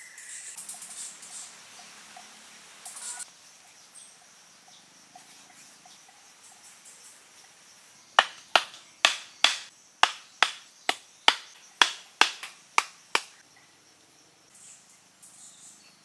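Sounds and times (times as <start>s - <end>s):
wooden mallet knocking stakes: 8.2s - 13.4s.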